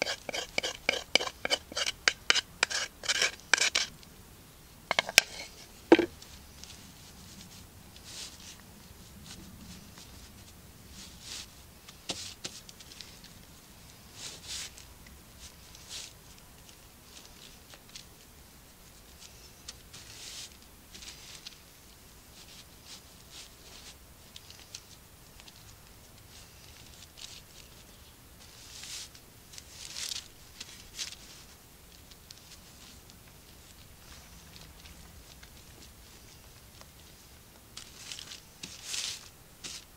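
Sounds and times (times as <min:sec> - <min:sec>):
utensils scraping on baking paper: 0:00.0 - 0:03.9, 0:04.9 - 0:06.1, 0:37.8 - 0:39.9.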